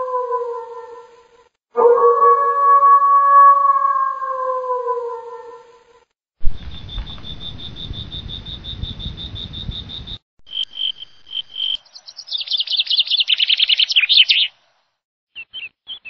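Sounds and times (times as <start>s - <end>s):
howl: 0.0s - 6.0s
cricket chirping: 6.4s - 14.0s
bird chirping: 6.5s - 14.6s, 15.3s - 16.0s.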